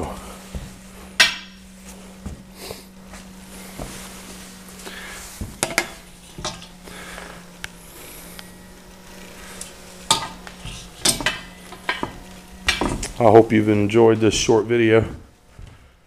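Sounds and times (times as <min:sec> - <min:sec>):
steady low hum: 0:00.0 - 0:16.0
metal heat sinks knocking: 0:00.5 - 0:02.4, 0:05.3 - 0:06.7, 0:10.0 - 0:13.2.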